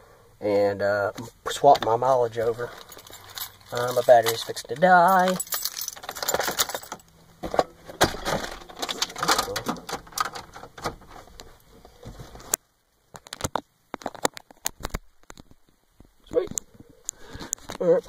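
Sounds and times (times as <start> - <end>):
background noise: 0.0 - 18.0.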